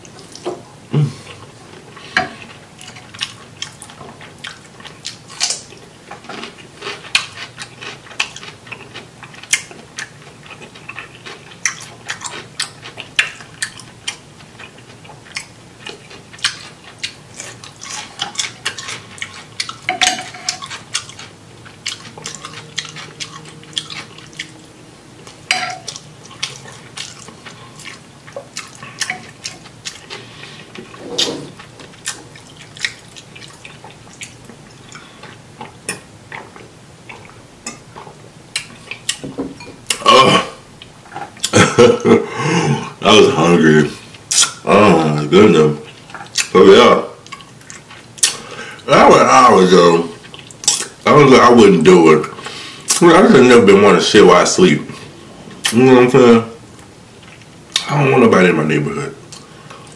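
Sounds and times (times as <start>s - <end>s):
wet chewing mouth clicks: 32.0s - 37.4s, 46.0s - 46.6s.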